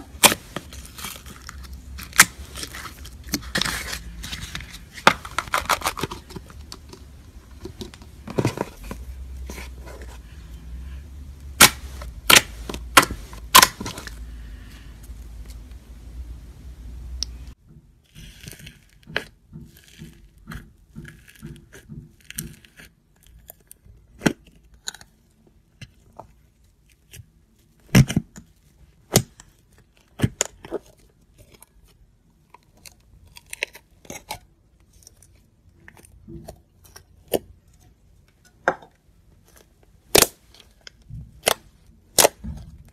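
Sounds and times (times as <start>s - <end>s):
slime popping and crackling: 0.0s - 7.0s, 11.5s - 14.2s, 40.1s - 40.5s
faint low hum: 0.0s - 42.9s.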